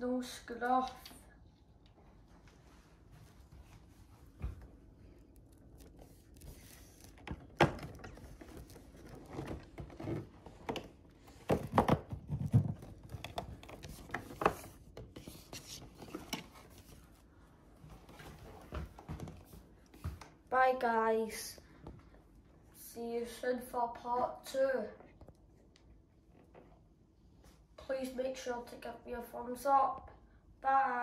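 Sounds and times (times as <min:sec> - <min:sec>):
cardboard box and toy handling: 0:05.3 - 0:17.1.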